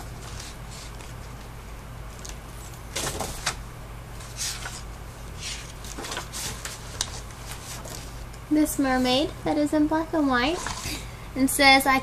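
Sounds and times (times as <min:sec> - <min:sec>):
paper rustling and sliding: 0:00.1 - 0:01.4, 0:02.1 - 0:03.6, 0:04.2 - 0:08.2, 0:10.5 - 0:11.0.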